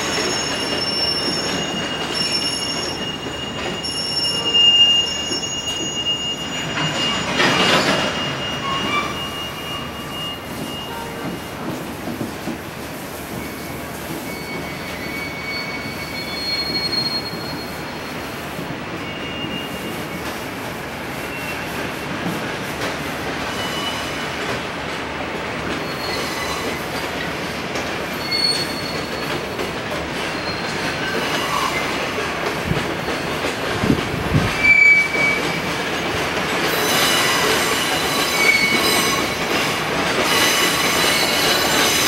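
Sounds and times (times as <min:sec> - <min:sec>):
train wheels squealing: 0:00.0 - 0:11.9, 0:13.1 - 0:22.6, 0:23.4 - 0:24.6, 0:25.6 - 0:42.0
train rumbling on tracks: 0:00.0 - 0:42.0.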